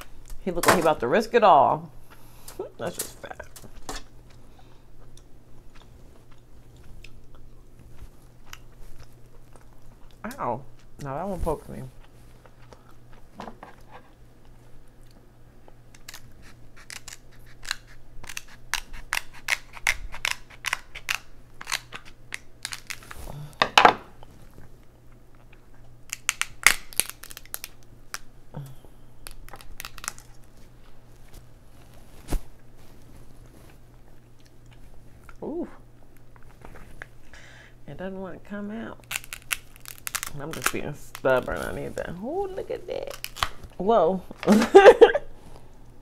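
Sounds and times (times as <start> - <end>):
crab shell cracking: 15.9 - 23.2, 25.5 - 28.3, 29.2 - 30.6, 39.0 - 41.5, 43.0 - 43.8.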